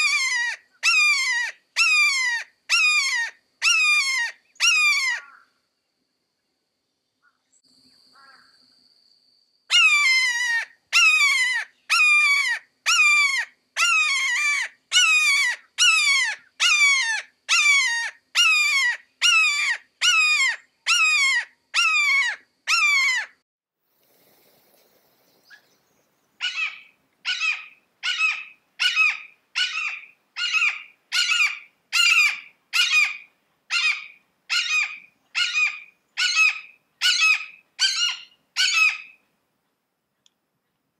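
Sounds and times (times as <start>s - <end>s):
hawk calling: 26.4s - 39.2s.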